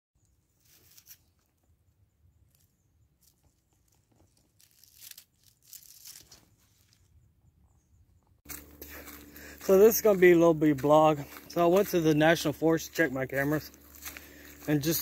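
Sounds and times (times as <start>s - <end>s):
stick raking dry leaves: 4.2s - 7.0s, 8.5s - 15.0s.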